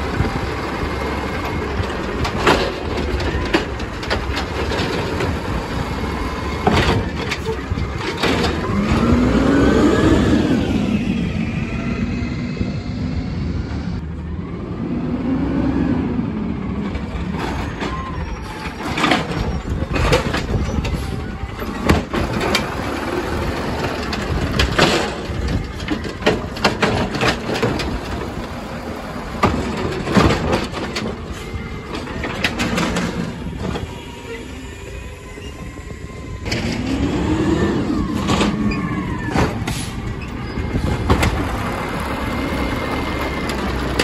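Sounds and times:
cart banging against hopper: 0.0s - 9.4s, 17.2s - 33.9s, 36.4s - 44.0s
garbage truck running: 0.0s - 44.0s
side-loader arm lifting: 16.4s - 44.0s.

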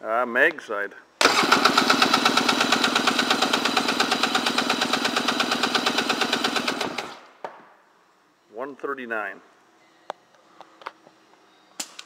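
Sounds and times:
engine cranked by starter: 1.2s - 7.2s.

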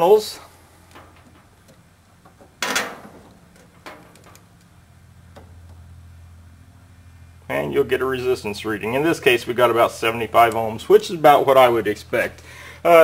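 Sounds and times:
steady low hum: 0.0s - 13.0s
test leads clicking and handling: 0.8s - 5.8s, 10.4s - 10.9s.

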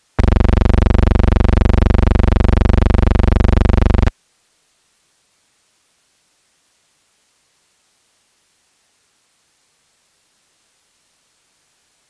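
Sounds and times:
low buzzing tone: 0.1s - 4.1s.

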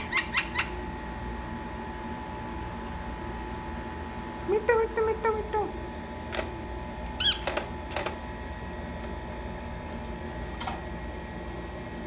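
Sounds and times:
parakeet chirping: 0.0s - 0.8s, 7.2s - 7.4s.

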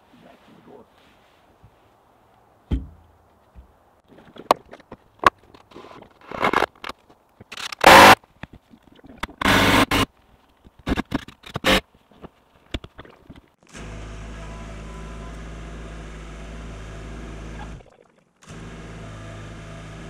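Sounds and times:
wooden panels knocking: 2.7s - 3.7s.

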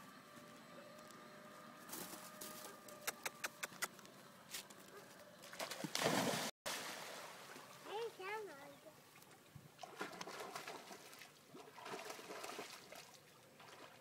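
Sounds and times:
water splashing: 5.4s - 14.0s.

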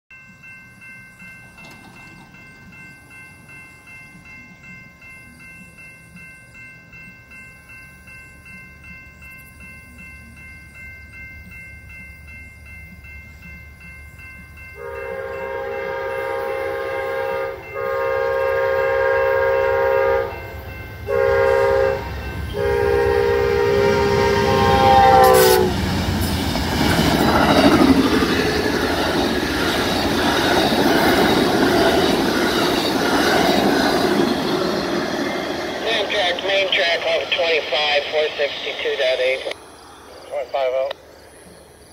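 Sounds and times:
railroad crossing bell ringing: 0.1s - 41.9s
train roaring past: 0.2s - 41.9s
train wheels clickety-clack: 1.4s - 2.7s, 24.8s - 37.7s
locomotive air horn: 14.8s - 20.5s, 21.1s - 25.8s.

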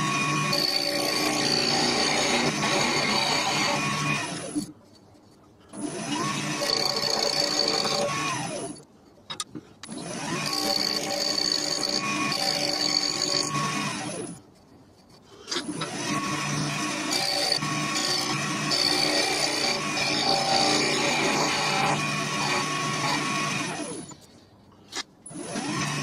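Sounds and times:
wood lathe motor whine: 0.0s - 4.7s, 5.8s - 8.8s, 9.9s - 14.2s, 15.8s - 24.2s.

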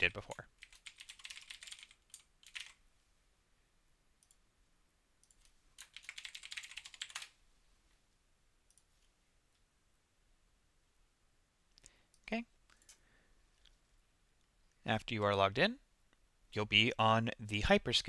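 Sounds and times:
computer keyboard typing: 0.0s - 2.8s, 5.2s - 7.4s.

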